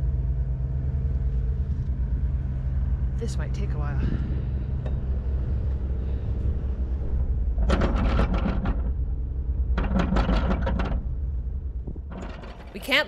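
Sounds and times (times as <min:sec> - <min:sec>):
anchor windlass droning: 0:00.0 - 0:13.0
rapid chain clacking: 0:12.1 - 0:13.0.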